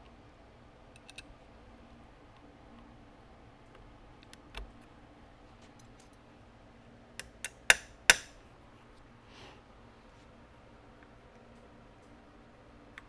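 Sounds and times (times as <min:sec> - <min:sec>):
small steel parts clicking: 0:00.9 - 0:01.3.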